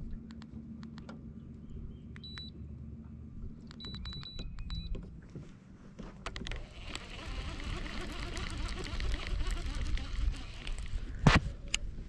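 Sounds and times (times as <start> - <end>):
low steady hum: 0.0 - 12.0
remote control beeps: 2.2 - 2.6, 3.7 - 5.0.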